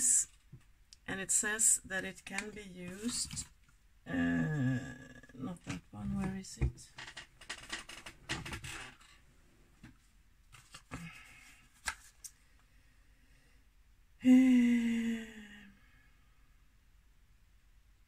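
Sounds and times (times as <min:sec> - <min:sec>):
makeup items rustling and clattering: 0:02.3 - 0:03.7, 0:09.9 - 0:11.0
woman humming: 0:04.1 - 0:05.7, 0:14.2 - 0:15.9.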